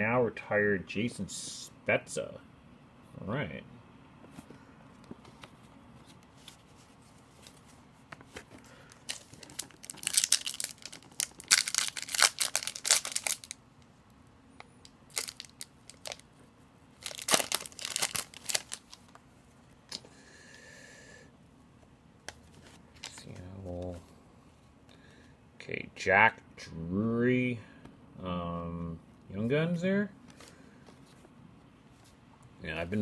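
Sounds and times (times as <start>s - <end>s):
foil wrapper crinkling: 8.7s - 13.6s, 15.1s - 16.3s, 17.0s - 19.2s.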